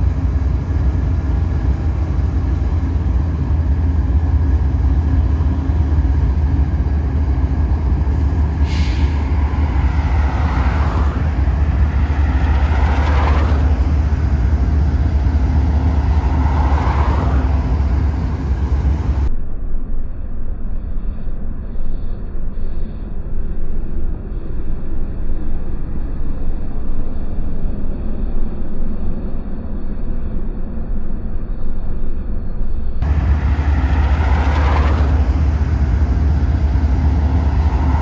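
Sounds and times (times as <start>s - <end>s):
diesel locomotive engine rumble: 0.0s - 38.0s
brief hiss: 8.6s - 9.3s.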